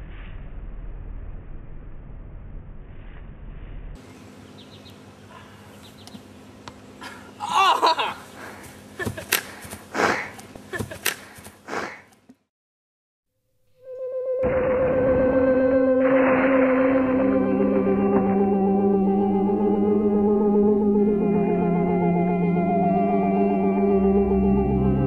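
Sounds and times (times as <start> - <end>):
person crying out: 7.4 - 8.3.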